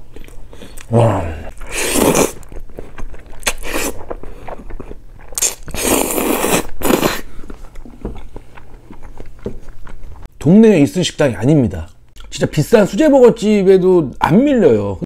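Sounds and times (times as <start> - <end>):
chewing: 1.5 - 10.3
loud slurping of noodles: 1.6 - 2.4, 5.4 - 7.3.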